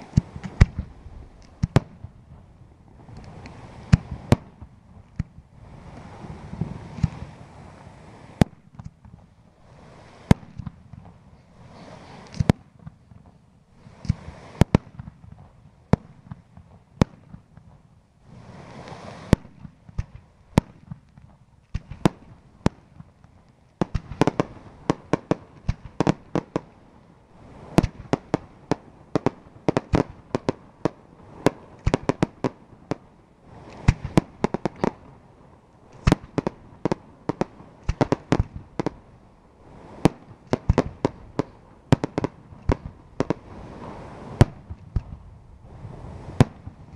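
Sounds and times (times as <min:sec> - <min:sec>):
firework hissing rushes: 0:18.2 - 0:19.5
firework shells bursting: 0:35.9 - 0:39.0, 0:40.0 - 0:45.2.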